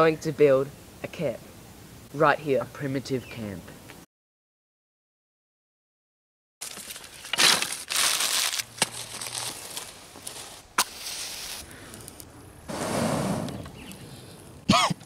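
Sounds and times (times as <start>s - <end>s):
twigs and leaves crunching: 6.6s - 12.3s.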